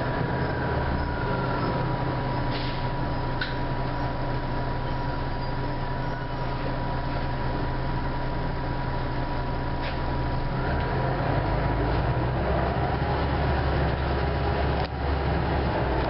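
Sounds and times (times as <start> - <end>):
engine whine accelerating: 0.0 - 5.4
bus diesel engine idling: 0.0 - 16.0.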